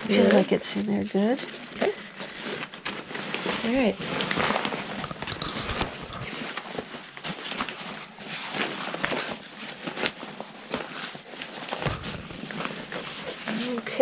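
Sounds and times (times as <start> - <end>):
backpack fabric rustling: 2.4 - 13.4.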